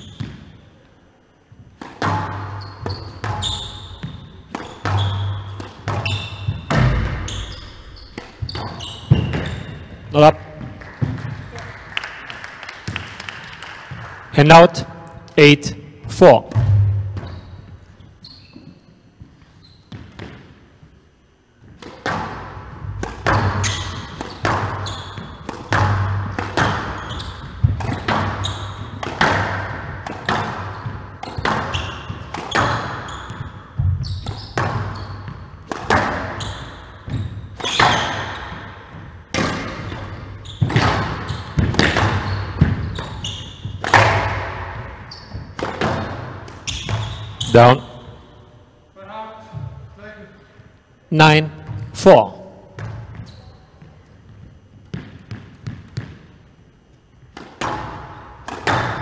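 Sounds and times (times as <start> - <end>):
squash ball hits echoing: 1.6 - 14.3, 16.0 - 17.8, 21.6 - 48.2, 57.3 - 59.0.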